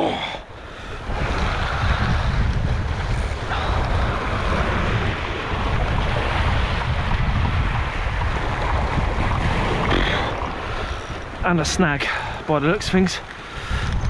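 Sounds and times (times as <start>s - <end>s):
sea surf washing over rocks: 0.0s - 14.0s
wind buffeting microphone: 0.0s - 14.0s.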